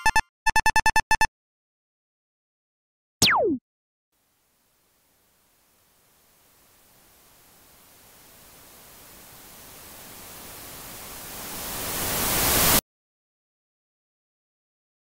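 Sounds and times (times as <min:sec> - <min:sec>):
white-noise riser: 0:06.4 - 0:12.8.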